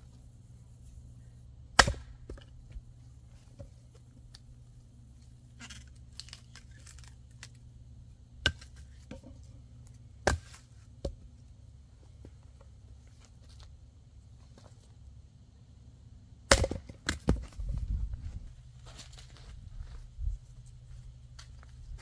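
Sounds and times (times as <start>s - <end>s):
wood crackling and rustling: 2.3s - 7.7s, 17.2s - 22.0s.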